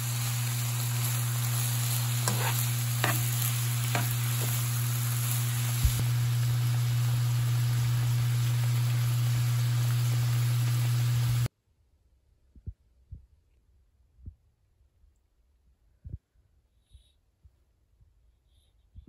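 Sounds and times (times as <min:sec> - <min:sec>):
water boiling in pot: 0:00.0 - 0:02.1, 0:03.6 - 0:11.5
low hum: 0:00.0 - 0:11.5
stir-fry sizzling: 0:00.0 - 0:11.5.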